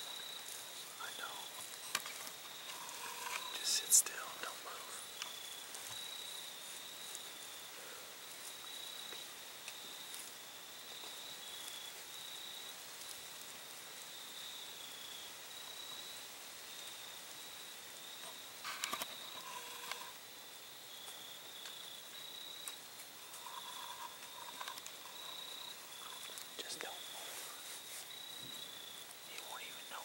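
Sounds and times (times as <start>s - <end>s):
insects trilling: 0.0s - 30.0s
clicks and rustles: 22.6s - 26.9s.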